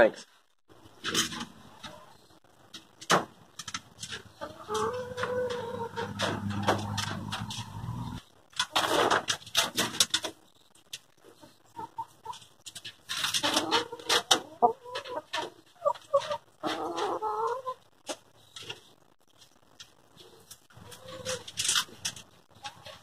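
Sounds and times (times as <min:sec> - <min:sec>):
rustling and clatter in hutch: 0:00.8 - 0:11.5, 0:12.2 - 0:23.0
chickens clucking and squawking: 0:04.0 - 0:10.4, 0:11.2 - 0:18.2, 0:20.4 - 0:23.0.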